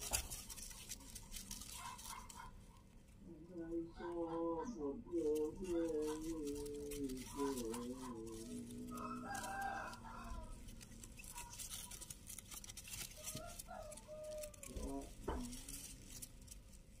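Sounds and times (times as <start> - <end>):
rooster crowing: 8.4 - 11.6, 13.0 - 15.4.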